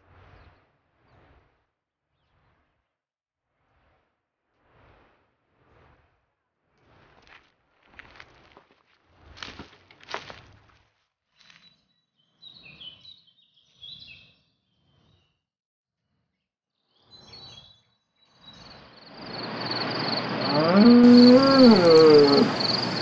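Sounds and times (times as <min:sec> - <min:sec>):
pulsing insect chirr: 0:18.9 - 0:23.0
long gliding pitched call: 0:19.2 - 0:23.0.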